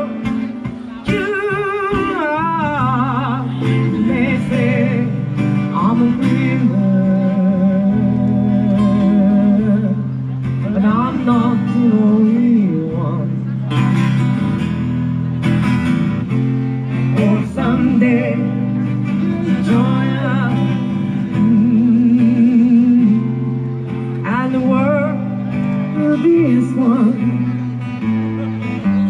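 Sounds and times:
guitar playing held chords: 0.0 - 29.0
person singing with vibrato: 16.9 - 23.5.

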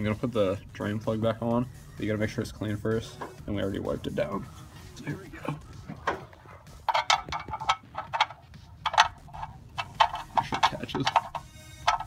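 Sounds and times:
drain plug clicking on threads: 6.8 - 12.0.

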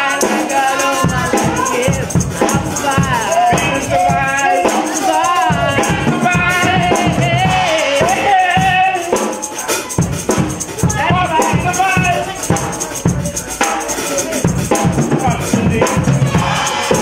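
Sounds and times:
amplified music with steady beat: 0.0 - 17.0.

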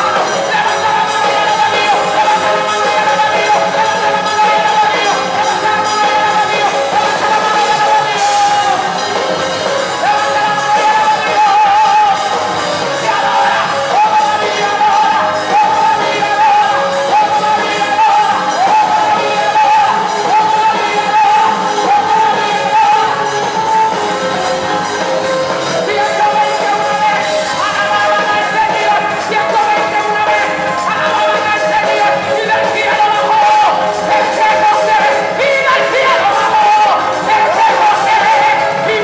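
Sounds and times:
band with drums and guitar: 0.0 - 39.0
woman singing into microphone: 0.0 - 39.0.

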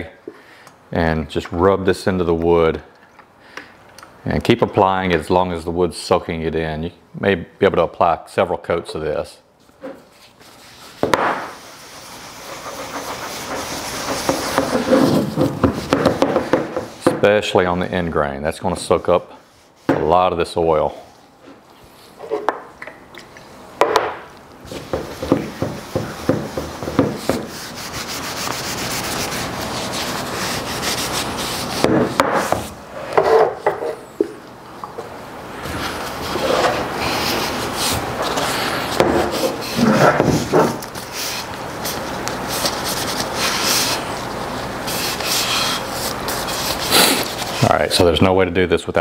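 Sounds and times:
cloth rag rubbing wood: 10.1 - 16.0, 24.7 - 32.6, 35.7 - 47.7.

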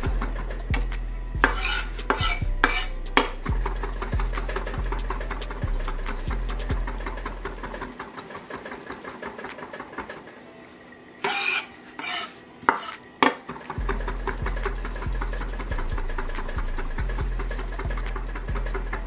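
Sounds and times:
knife scraping board: 1.4 - 2.9, 11.2 - 13.0.

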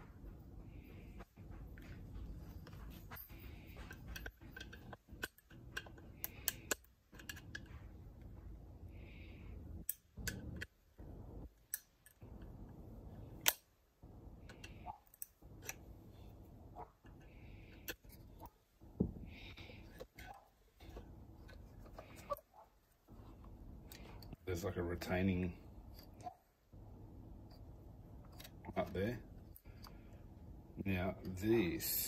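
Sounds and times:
metal parts and tools knocking: 2.6 - 8.0.

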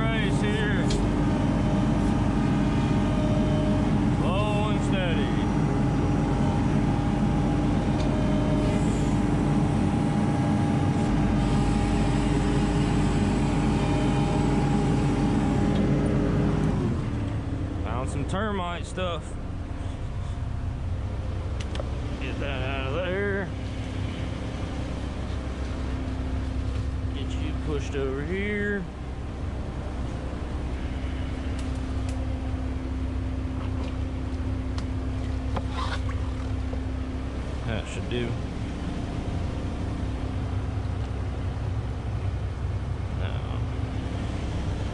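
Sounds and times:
loader diesel engine under load: 0.0 - 35.2.

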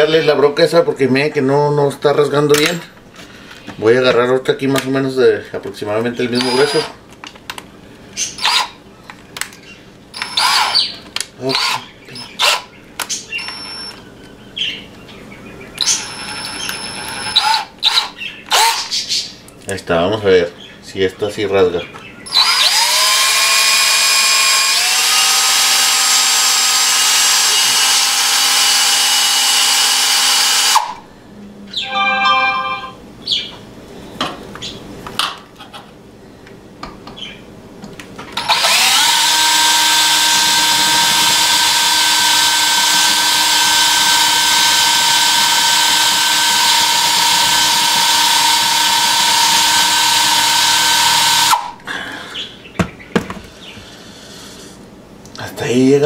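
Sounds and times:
electric drill whining: 6.4 - 7.0, 8.4 - 8.7, 10.2 - 10.9, 13.3 - 14.0, 15.8 - 18.8, 22.3 - 31.0, 38.4 - 51.7.

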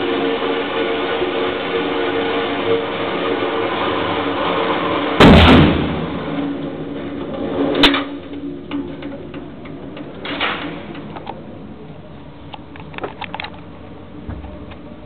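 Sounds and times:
target carrier whirring hum: 0.0 - 15.0
gunshot bang with echo: 5.2 - 6.0.

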